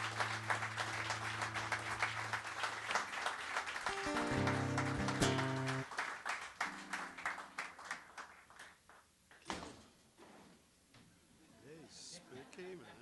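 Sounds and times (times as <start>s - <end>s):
audience clapping: 0.0s - 9.4s
guitar chord ringing: 3.9s - 5.8s.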